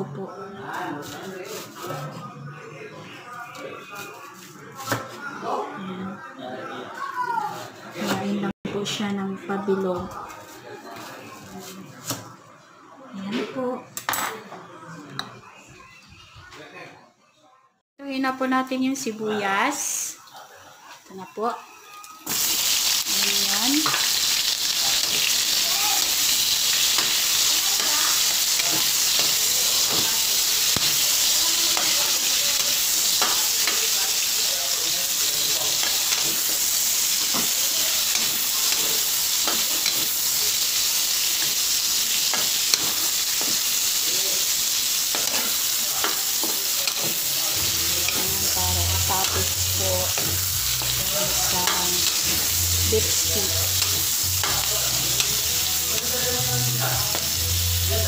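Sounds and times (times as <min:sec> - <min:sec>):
onions sizzling in hot oil: 0:19.0 - 0:58.0
metal spatula scraping a pan: 0:22.7 - 0:43.8, 0:44.7 - 0:57.4.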